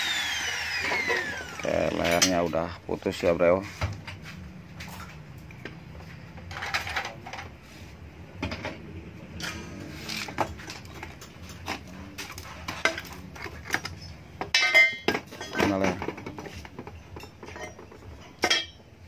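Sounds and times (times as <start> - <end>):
metal parts clinking on concrete: 9.4 - 16.1, 17.2 - 18.8.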